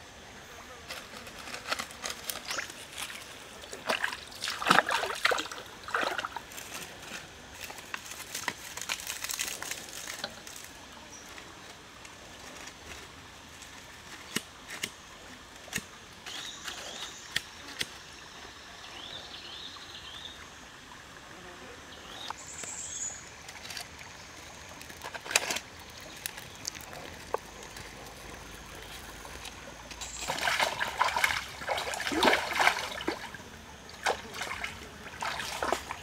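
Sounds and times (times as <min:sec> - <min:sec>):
creek trickling: 0:00.9 - 0:21.3, 0:21.9 - 0:36.0
dry sticks clicking and knocking: 0:24.8 - 0:28.2.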